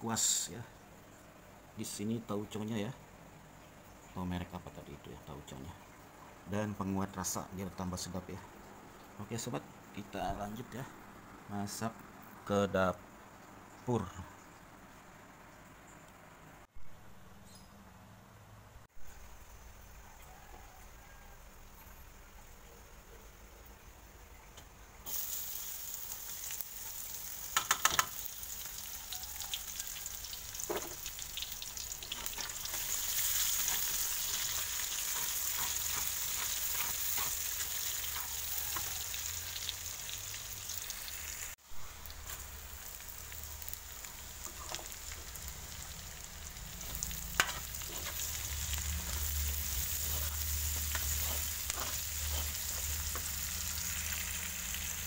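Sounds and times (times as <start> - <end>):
shallots sizzling in hot oil: 24.6 - 55.0
spatula tapping pan: 27.5 - 28.2
metal spatula scraping pan: 32.1 - 38.9, 46.8 - 53.5.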